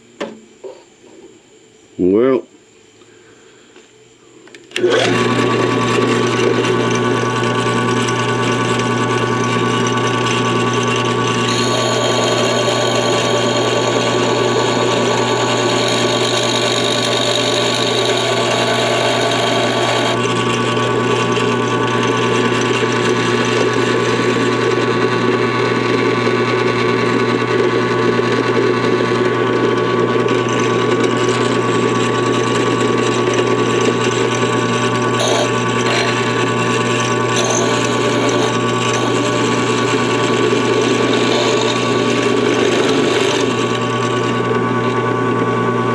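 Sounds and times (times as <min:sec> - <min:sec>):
end mill cutting metal: 0:04.7 - 0:45.8
drill press motor running: 0:04.7 - 0:45.9.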